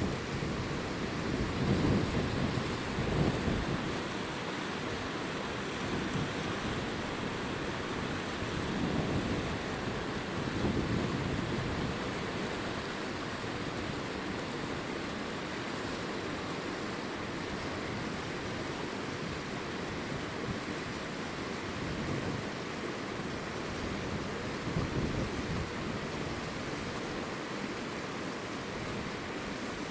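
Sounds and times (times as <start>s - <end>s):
wind rushing across microphone: 0.0s - 4.3s, 5.8s - 14.6s, 23.2s - 27.0s.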